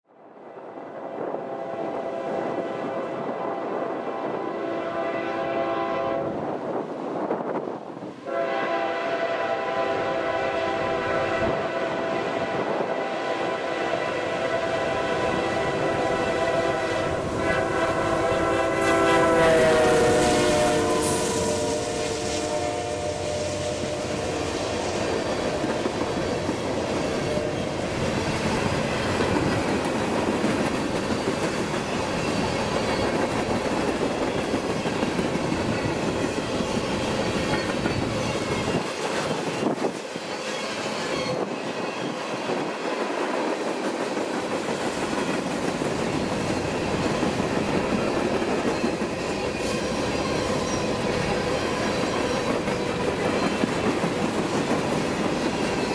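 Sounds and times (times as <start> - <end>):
train wheels rumbling on rails: 5.2 - 55.9.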